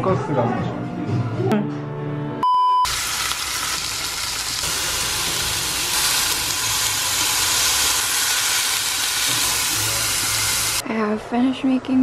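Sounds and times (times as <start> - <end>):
chicken frying in oil: 2.9 - 10.8.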